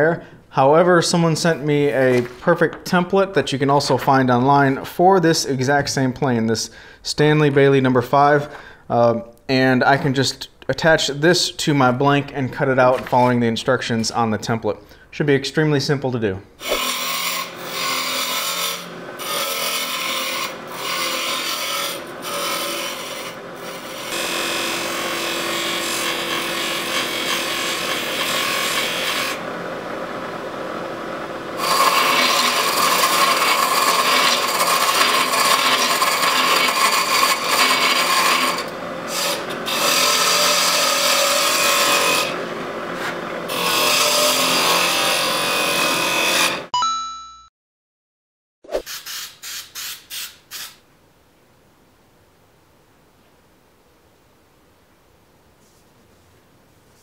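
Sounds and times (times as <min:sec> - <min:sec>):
lathe gouge cutting wood: 0:16.6 - 0:46.7.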